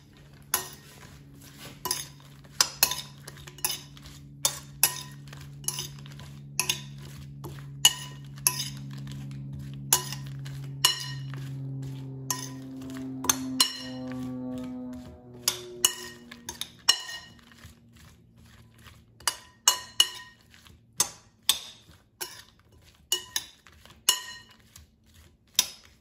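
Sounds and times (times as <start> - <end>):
metal utensil clinking on glass bowl: 4.5 - 6.0, 19.3 - 20.4, 23.1 - 23.5, 24.1 - 24.6.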